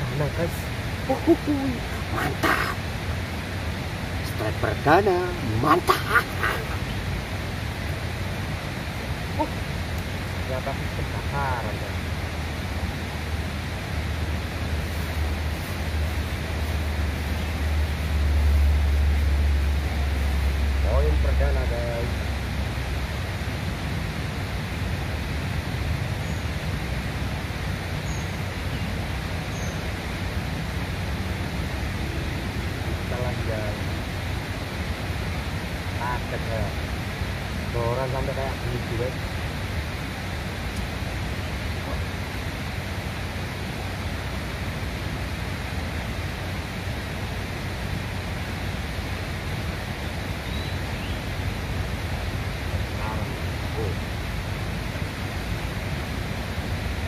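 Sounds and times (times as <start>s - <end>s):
steady rushing outdoor noise: 0.0s - 57.0s.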